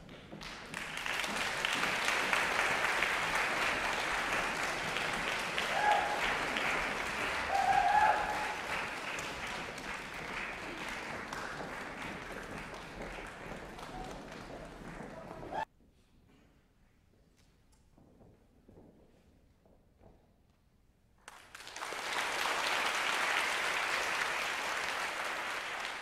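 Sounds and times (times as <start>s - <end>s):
audience applause: 0.0s - 15.6s, 21.3s - 26.0s.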